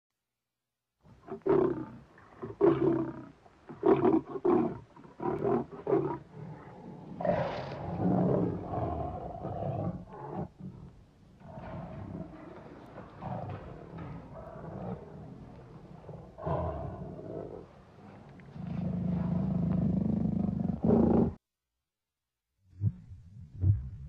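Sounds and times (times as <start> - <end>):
big cat roaring: 1.3 - 17.7, 18.6 - 21.4.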